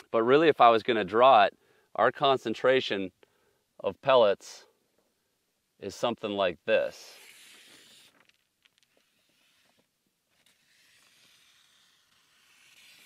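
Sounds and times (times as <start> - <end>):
marker pen scratching on paper: 7.1 - 13.0.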